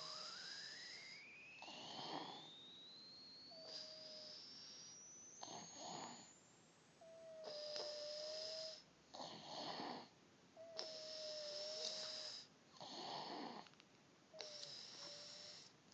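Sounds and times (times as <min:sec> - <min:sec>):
baby snoring softly: 0:00.0 - 0:02.7, 0:03.5 - 0:06.4, 0:07.0 - 0:13.7, 0:14.3 - 0:15.8
whistling wheeze: 0:00.0 - 0:08.9, 0:10.6 - 0:12.5, 0:14.4 - 0:15.7.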